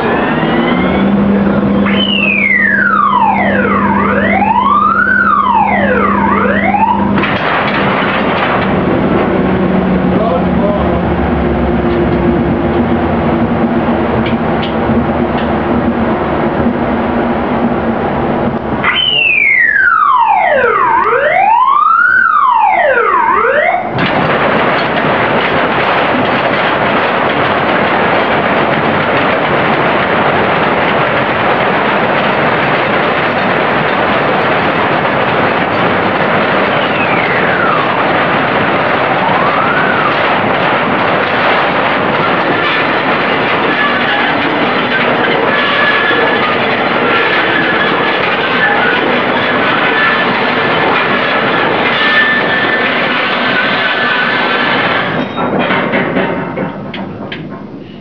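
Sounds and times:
wailing tone rising and falling: 0.0 - 8.5, 39.1 - 41.0
siren-like whine: 0.0 - 13.9, 18.8 - 24.1, 32.4 - 55.5
low machinery hum: 0.0 - 18.9, 23.8 - 58.0.

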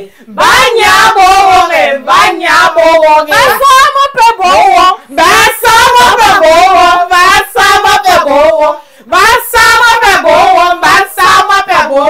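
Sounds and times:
voices singing celebratory song: 0.0 - 12.0.

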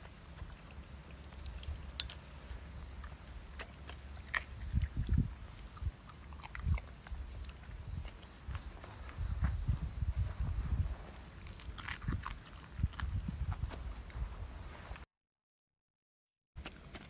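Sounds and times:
dog chewing raw meat: 0.0 - 8.7, 11.3 - 13.2.

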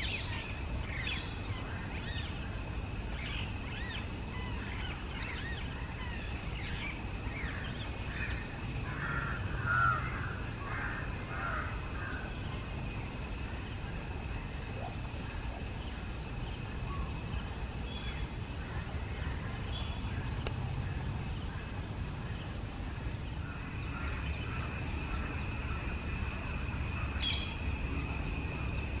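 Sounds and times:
insect drone: 0.0 - 29.0
bird chirps: 23.4 - 29.0.

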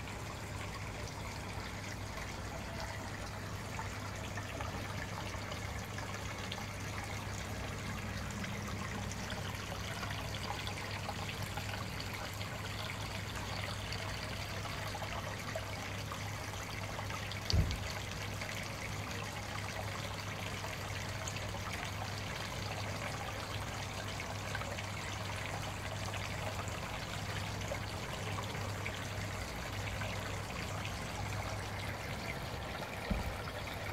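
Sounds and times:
water trickling into pond: 0.0 - 33.9
thump: 17.5 - 17.8, 33.1 - 33.4.

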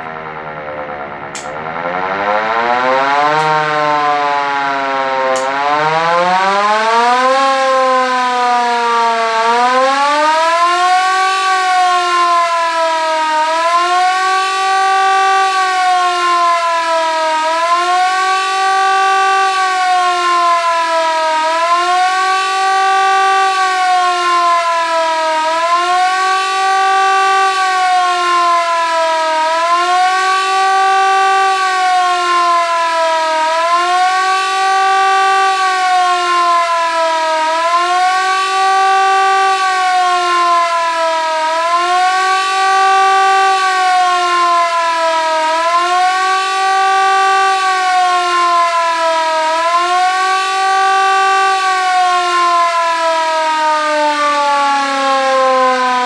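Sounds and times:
wailing motor siren: 0.0 - 56.0.

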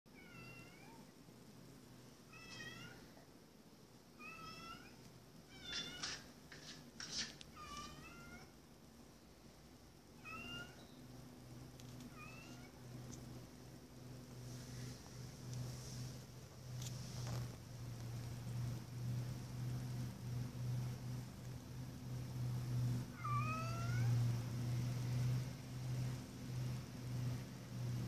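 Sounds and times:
cat meowing: 23.2 - 24.2.

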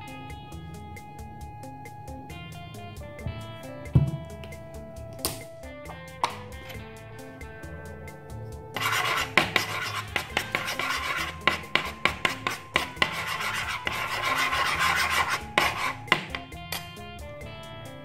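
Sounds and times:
quiet guitar music: 0.0 - 18.0
utensil scraping foam on wood: 8.8 - 16.4.

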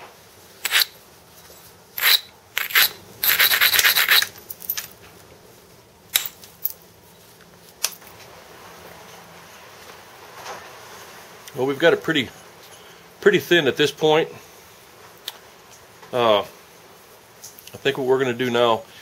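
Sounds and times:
tool scraping along flint: 0.6 - 0.9, 2.0 - 4.8.

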